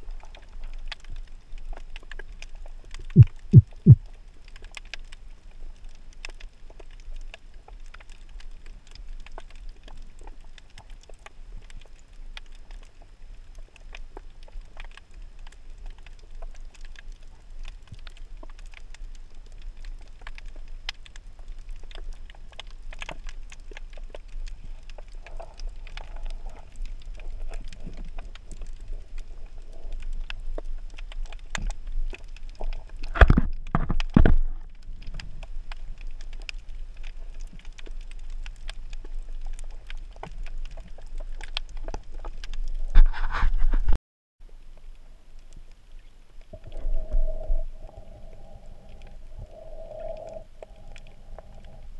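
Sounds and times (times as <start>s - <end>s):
crackle of sharp clicks: 0.0s - 43.0s
low underwater rumble: 3.0s - 4.1s, 44.5s - 51.9s.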